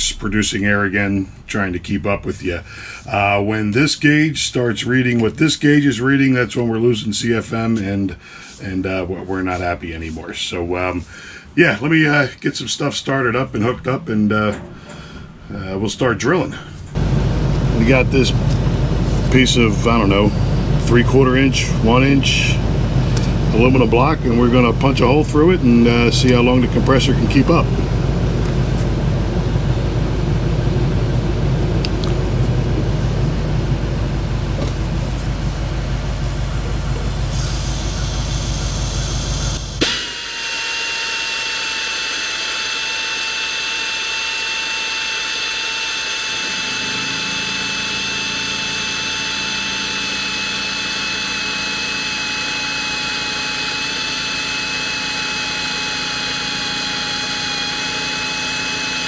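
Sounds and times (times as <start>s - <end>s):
air compressor humming: 16.8s - 59.0s
pneumatic drill whining: 17.8s - 27.9s, 34.6s - 59.0s.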